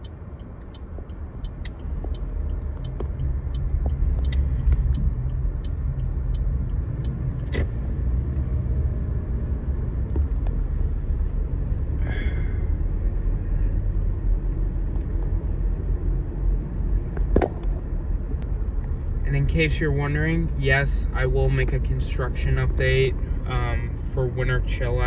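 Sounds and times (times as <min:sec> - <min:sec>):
faint light ticks and clicks: 0:00.0 - 0:07.8
car road and engine rumble: 0:00.0 - 0:25.0.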